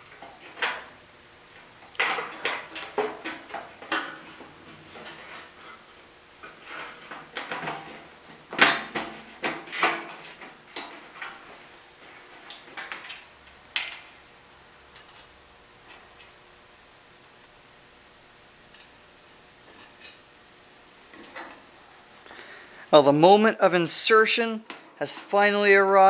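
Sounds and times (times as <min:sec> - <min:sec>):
metal clanks and scrapes: 0:06.4 - 0:08.1, 0:18.8 - 0:20.2.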